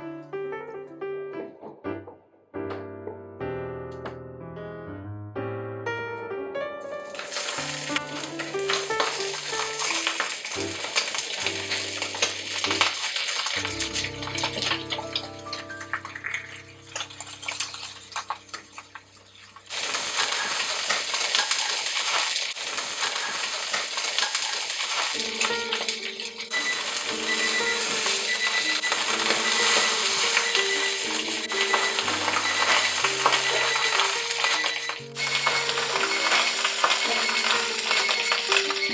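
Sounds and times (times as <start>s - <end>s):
background music: 0.0s - 19.1s, 25.2s - 38.9s
fish sizzling in hot oil: 7.0s - 38.9s.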